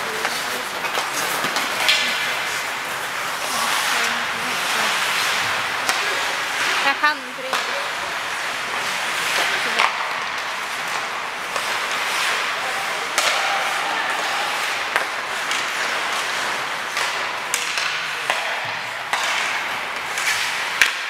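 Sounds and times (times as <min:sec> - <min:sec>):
hockey sticks clacking: 0:00.0 - 0:21.0
skates scraping on ice: 0:00.0 - 0:21.0.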